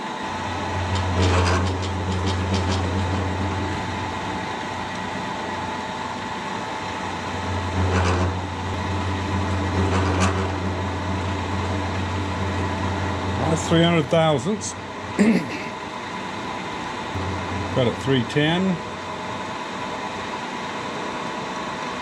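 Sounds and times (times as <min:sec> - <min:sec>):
milling machine motor hum: 0:00.0 - 0:20.7
cutter scraping steel: 0:07.6 - 0:11.8.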